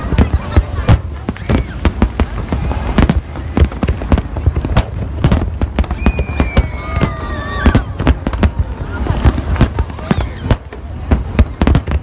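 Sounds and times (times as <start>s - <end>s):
falling firework whistle: 5.8s - 8.2s, 8.8s - 11.9s.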